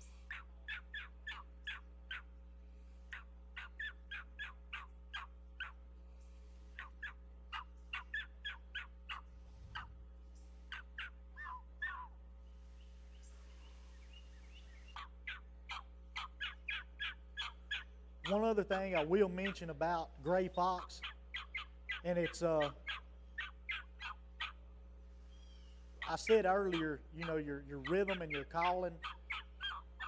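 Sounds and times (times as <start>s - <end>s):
predator call yelps: 0.2s - 2.4s, 3.1s - 5.8s, 6.8s - 10.0s, 10.7s - 12.2s, 14.9s - 24.6s, 25.6s - 30.0s.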